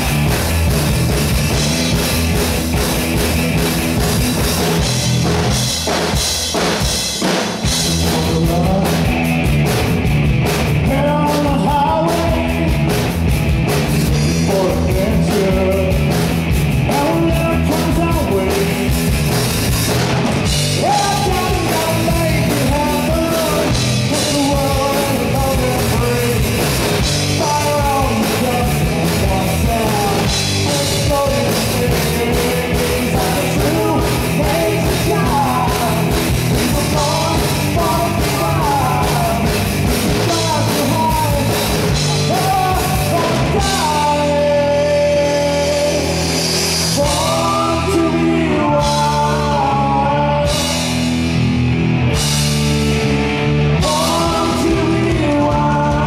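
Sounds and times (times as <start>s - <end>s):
rock band playing: 0.0s - 56.0s
man singing through a pa: 8.1s - 9.1s, 10.8s - 12.7s, 14.1s - 16.1s, 16.9s - 18.8s, 20.8s - 26.6s, 27.3s - 46.2s, 46.9s - 50.7s, 53.8s - 56.0s.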